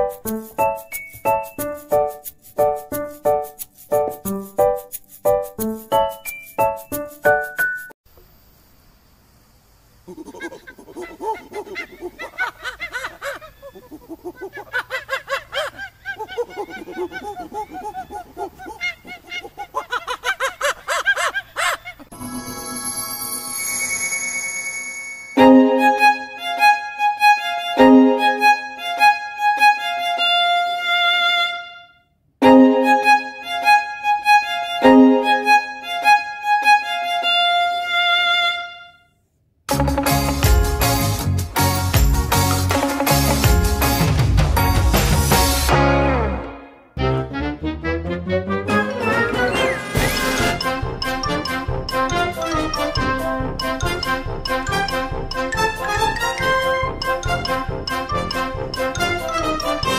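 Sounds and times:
bright melodic instrumental tune: 0.0 - 8.0, 22.1 - 30.4, 32.4 - 37.4, 39.7 - 59.9
monkey-like chattering calls: 10.1 - 15.0, 15.7 - 22.1.

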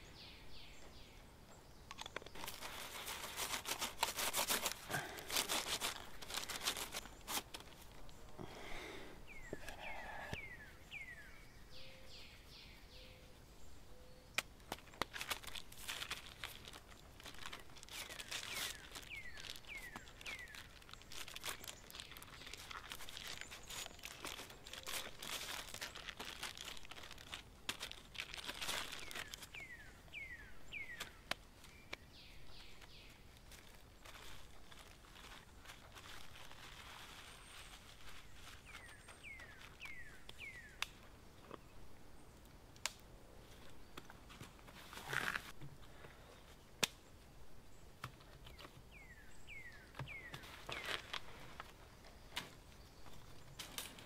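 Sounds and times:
baking paper crinkling: 2.0 - 8.4, 14.7 - 29.8, 32.7 - 40.8, 50.3 - 51.7
bird chirps: 9.3 - 14.4, 28.9 - 33.2, 37.4 - 40.8, 48.4 - 51.1.

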